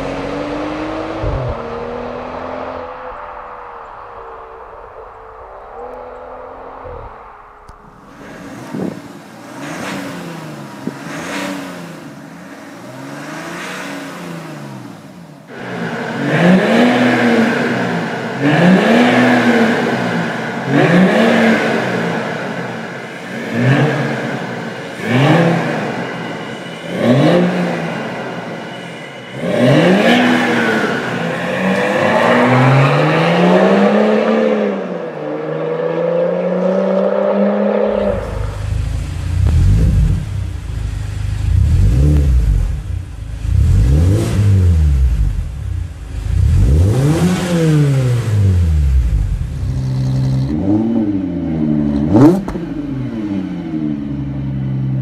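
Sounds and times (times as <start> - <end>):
louder diesel engine blipping: 0.0 - 35.2
diesel engine revving: 0.0 - 55.0.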